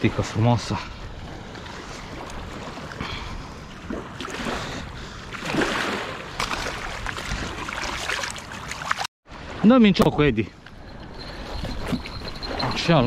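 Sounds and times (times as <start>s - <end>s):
river water splashing: 1.1s - 9.7s.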